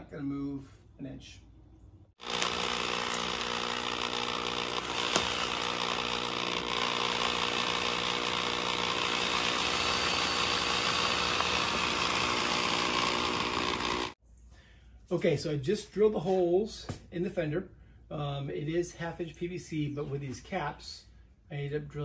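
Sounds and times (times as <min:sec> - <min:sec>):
power drill boring through foam: 0:02.2 - 0:14.2.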